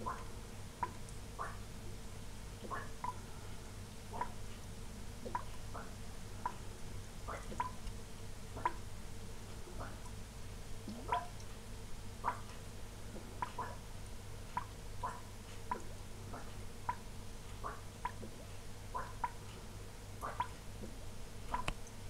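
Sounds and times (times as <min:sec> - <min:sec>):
airlocks bubbling: 0:02.6 - 0:03.4.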